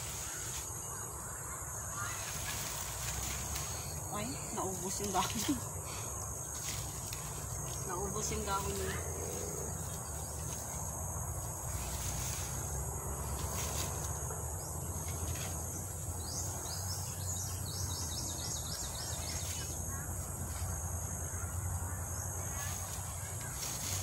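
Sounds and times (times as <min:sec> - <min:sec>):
crickets trilling: 0:00.0 - 0:24.0
bird chirping: 0:14.6 - 0:20.6.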